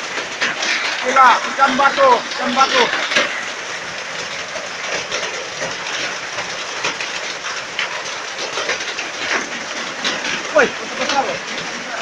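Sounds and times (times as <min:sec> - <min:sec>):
hail and rain pelting down: 0:00.0 - 0:12.0.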